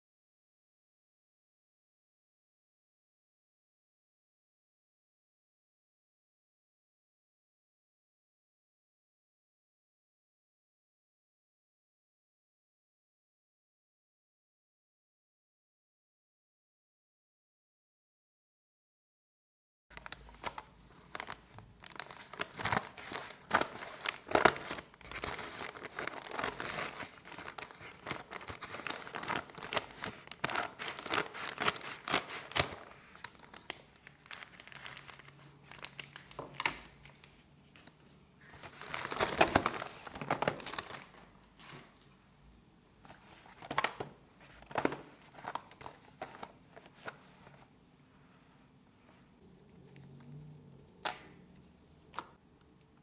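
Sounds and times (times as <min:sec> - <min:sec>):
paper mailer crinkling: 0:19.9 - 0:37.2, 0:38.4 - 0:41.3, 0:43.1 - 0:47.6
paper rustling: 0:19.9 - 0:42.1, 0:43.0 - 0:52.4.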